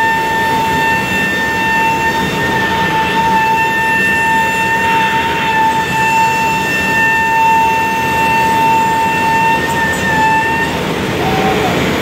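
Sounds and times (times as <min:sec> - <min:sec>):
router spindle high whine: 0:00.0 - 0:12.0
steady rushing noise: 0:10.2 - 0:12.0.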